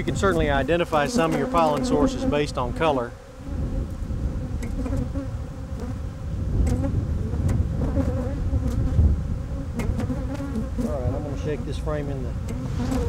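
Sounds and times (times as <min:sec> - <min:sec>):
honeybees buzzing: 0:00.0 - 0:13.0.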